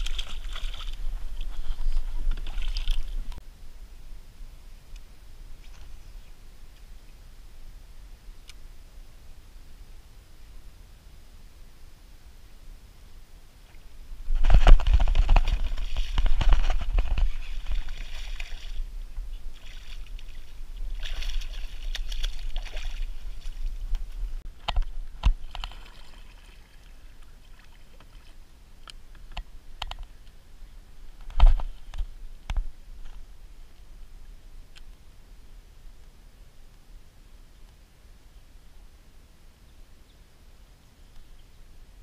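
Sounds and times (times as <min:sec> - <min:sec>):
water splashing against kayak: 0:00.0 - 0:03.4, 0:13.7 - 0:28.4.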